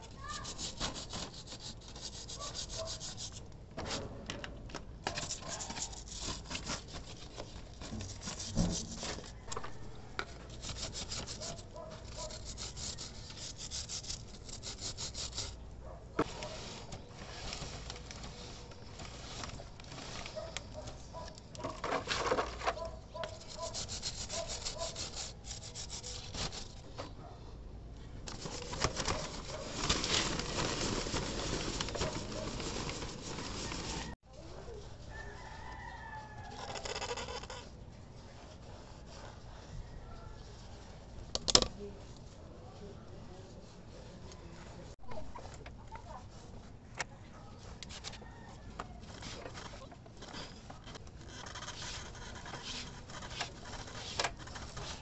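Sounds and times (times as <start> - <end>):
stiff brush scrubbing a chain: 0.0 - 3.4, 5.1 - 9.4, 10.4 - 15.6, 22.7 - 26.9, 49.2 - 55.0.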